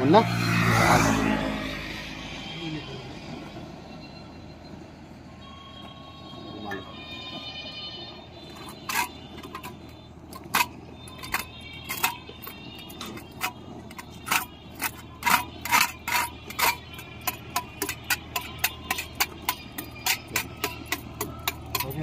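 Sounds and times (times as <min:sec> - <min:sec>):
hand scraper scraping road surface: 0:13.0 - 0:22.0.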